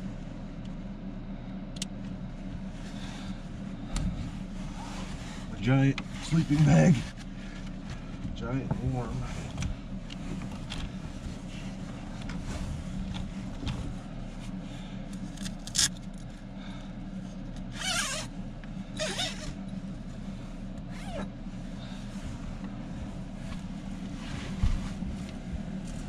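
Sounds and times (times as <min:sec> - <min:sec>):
steady low hum: 0:00.0 - 0:26.0
sleeping bag fabric rustling: 0:20.9 - 0:26.0
fabric swishing: 0:22.1 - 0:26.0.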